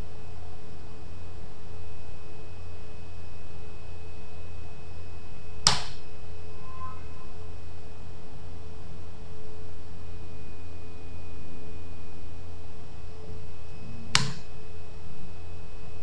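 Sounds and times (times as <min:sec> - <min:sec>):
electrical hum and hiss: 0:00.0 - 0:16.0
faint steady tones: 0:00.0 - 0:16.0
sharp click: 0:05.6 - 0:06.0, 0:14.1 - 0:14.5.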